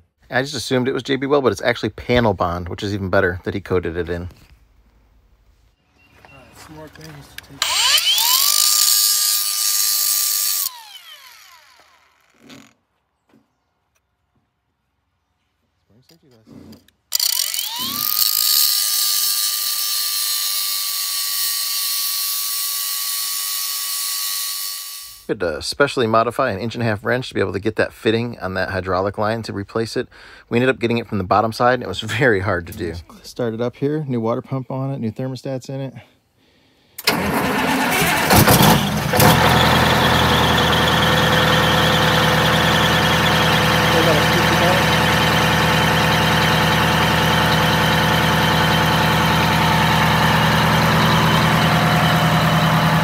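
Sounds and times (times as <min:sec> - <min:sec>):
engine starter cranking: 0:07.4 - 0:12.7, 0:17.1 - 0:19.6, 0:37.0 - 0:53.0
angle grinder grinding steel: 0:07.6 - 0:12.7, 0:17.1 - 0:25.3, 0:38.3 - 0:53.0
high-pitched belt squeal: 0:07.6 - 0:12.7, 0:17.2 - 0:25.3, 0:39.2 - 0:53.0
diesel engine idling: 0:37.1 - 0:53.0.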